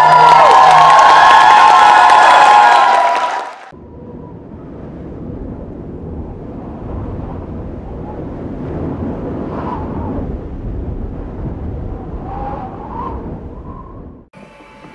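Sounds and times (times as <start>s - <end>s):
low rumbling whoosh: 3.7s - 14.3s.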